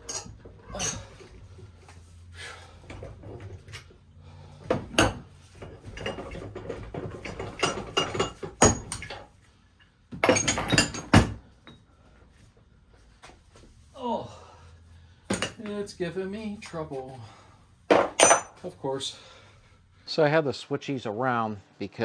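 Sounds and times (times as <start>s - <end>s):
metal clinks and knocks: 0.0s - 1.1s, 4.7s - 11.9s, 17.9s - 18.7s.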